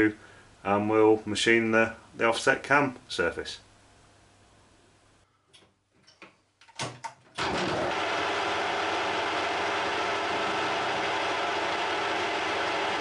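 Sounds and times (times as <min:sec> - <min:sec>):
metal lathe running: 0:07.8 - 0:13.0.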